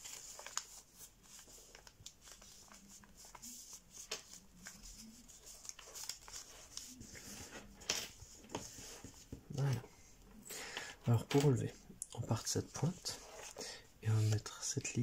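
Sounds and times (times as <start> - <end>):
paper being folded and creased: 0.0 - 9.7.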